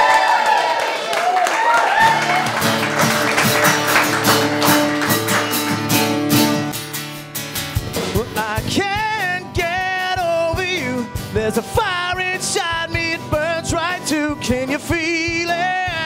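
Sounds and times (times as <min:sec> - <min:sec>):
bass guitar: 0:02.0 - 0:16.0
electric guitar chords: 0:02.0 - 0:16.0
strummed acoustic guitar: 0:02.1 - 0:16.0
drum beat of low thumps: 0:07.7 - 0:16.0.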